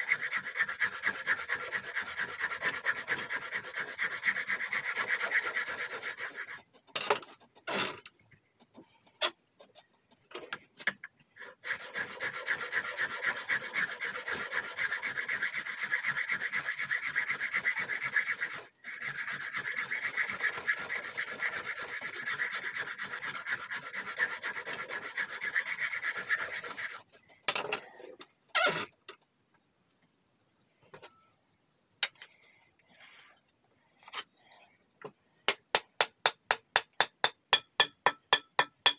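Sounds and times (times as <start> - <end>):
hand tool scraping wood: 0.0 - 29.0.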